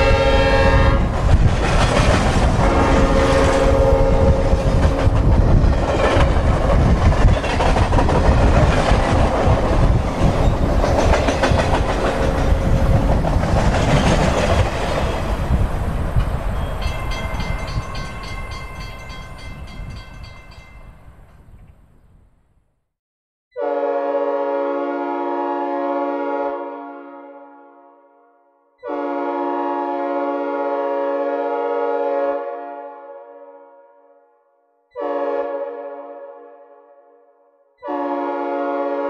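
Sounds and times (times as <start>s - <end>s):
train air horn chord: 0.0s - 1.1s, 2.6s - 5.2s, 23.6s - 39.0s
passing train rumble and clickety-clack: 0.0s - 21.7s.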